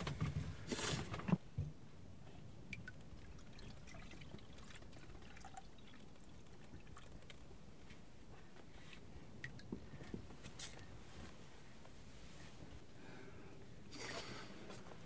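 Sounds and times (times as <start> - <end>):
milk trickling into bowl: 2.8 - 7.6.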